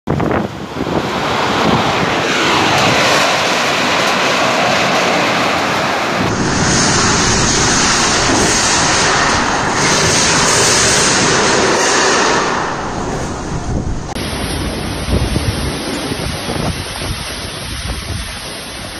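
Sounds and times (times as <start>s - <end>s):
heavy rain: 0.1s - 18.9s
strong wind: 0.1s - 18.9s
wind buffeting microphone: 0.1s - 18.9s.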